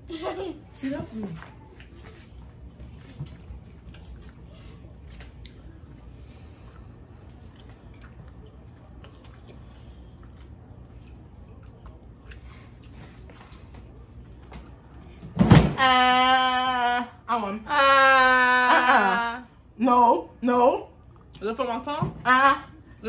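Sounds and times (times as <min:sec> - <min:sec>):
steady low hum: 0:00.0 - 0:23.0
wet chewing: 0:01.8 - 0:13.7.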